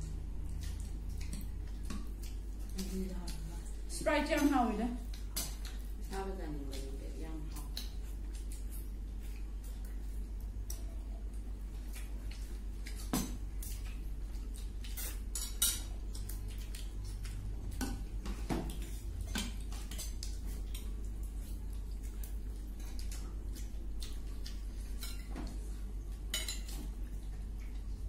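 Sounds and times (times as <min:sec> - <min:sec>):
utensils clinking on plates: 0:26.3 - 0:26.8.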